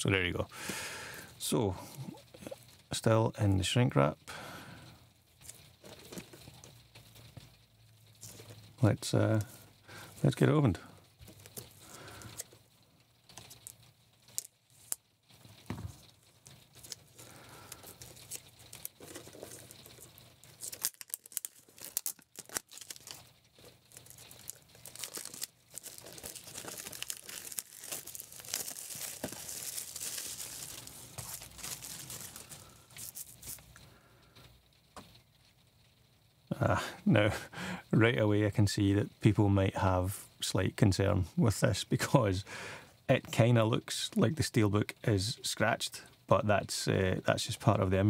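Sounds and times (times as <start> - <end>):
plastic shrink wrap tearing: 13.3 - 33.8.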